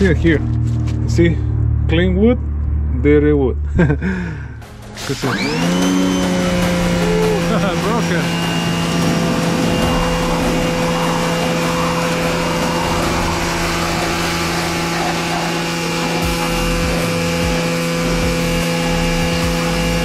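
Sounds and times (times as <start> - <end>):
pressure washer motor humming: 4.6 - 20.0
water jet spraying wooden boards: 5.0 - 20.0.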